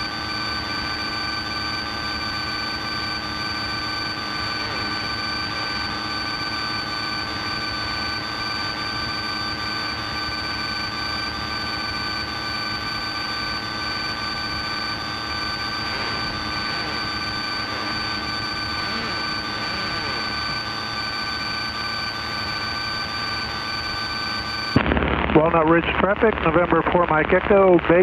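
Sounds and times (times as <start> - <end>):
high-pitched whine tones: 0.0 - 27.1.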